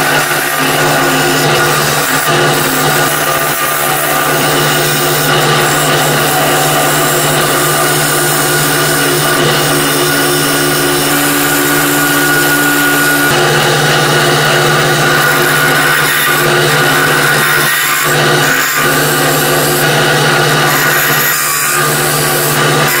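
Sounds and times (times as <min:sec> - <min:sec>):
high whine: 0:00.0 - 0:15.7
lathe motor hum: 0:00.0 - 0:23.0
tool scraping spinning wood: 0:00.0 - 0:23.0.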